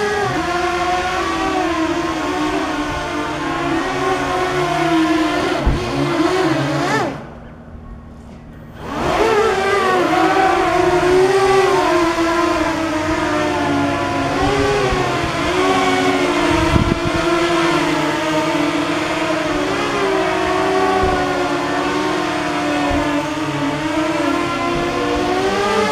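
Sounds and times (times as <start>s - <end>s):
drone motors and propellers whining: 0.0s - 25.9s.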